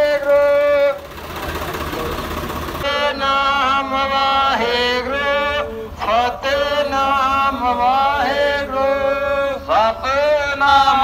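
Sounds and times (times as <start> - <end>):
person singing devotional chant: 2.8 - 11.0.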